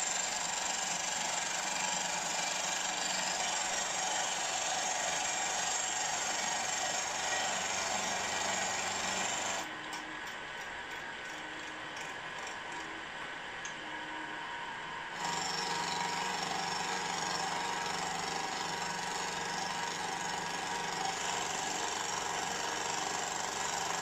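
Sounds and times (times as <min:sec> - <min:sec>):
milling machine cutting metal: 0:15.2 - 0:24.0.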